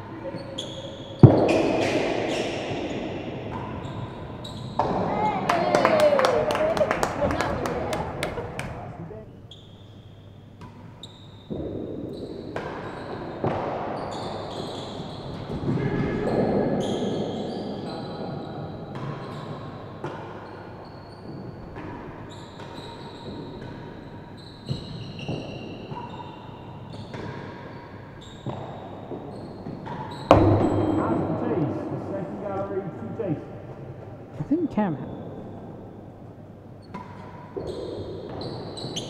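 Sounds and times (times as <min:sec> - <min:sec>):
ball bouncing off floor and walls: 0:00.3 - 0:08.8, 0:10.6 - 0:17.3, 0:17.9 - 0:26.2, 0:26.9 - 0:32.8
ball knocked by racquets: 0:01.1 - 0:03.8, 0:28.4 - 0:31.8.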